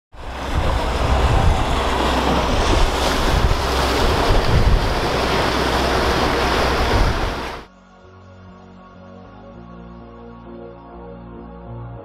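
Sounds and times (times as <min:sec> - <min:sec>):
choppy water: 0:00.1 - 0:07.7
motorboat rumble: 0:00.1 - 0:07.7
wind buffeting microphone: 0:00.1 - 0:07.7.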